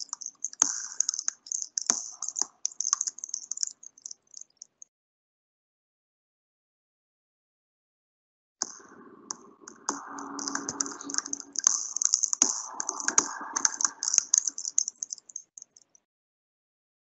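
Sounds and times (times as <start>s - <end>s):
rapid clicks and rattles: 0.0s - 4.8s, 10.4s - 16.0s.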